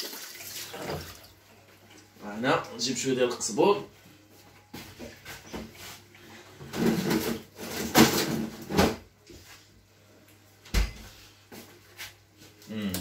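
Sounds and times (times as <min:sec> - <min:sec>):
freezer drawer rattling: 0:06.7 - 0:09.0.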